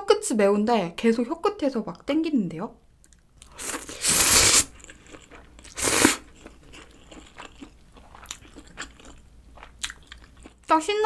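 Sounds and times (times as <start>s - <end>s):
person slurping noodles: 3.5s - 4.8s, 5.6s - 6.4s
chewing with wet mouth clicks: 4.7s - 10.6s.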